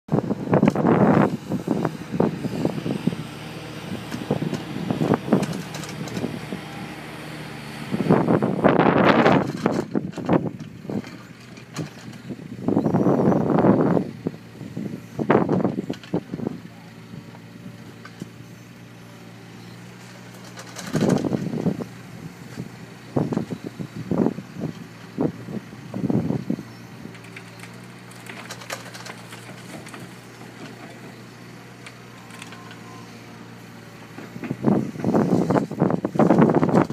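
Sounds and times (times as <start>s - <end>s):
wind buffeting microphone: 0.1s - 18.4s, 20.6s - 27.4s, 32.7s - 36.9s
excavator diesel engine running: 0.1s - 36.9s.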